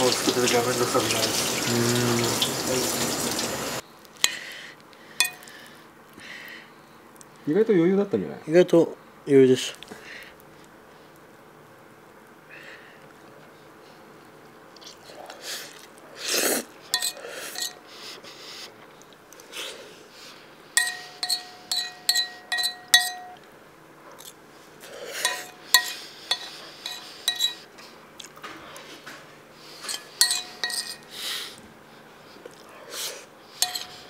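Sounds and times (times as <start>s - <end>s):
utensils clinking on dishes: 5.2s - 5.5s, 17.0s - 17.8s, 20.8s - 23.5s, 25.2s - 27.7s, 29.8s - 31.1s, 33.6s - 34.0s
utensil scraping dish: 17.0s - 17.8s, 20.8s - 23.4s, 25.2s - 27.7s, 29.8s - 31.1s, 33.6s - 34.0s.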